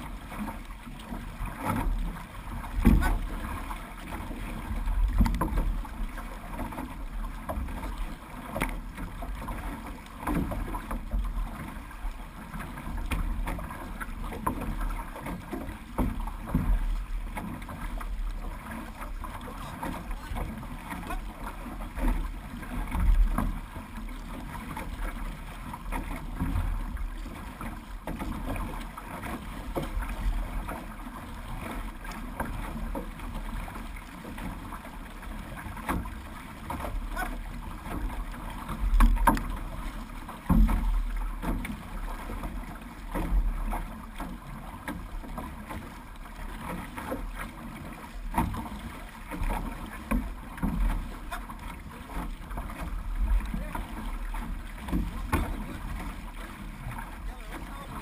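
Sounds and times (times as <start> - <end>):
paddles pulling through water: 0.0 - 58.0
water washing against hull: 0.0 - 58.0.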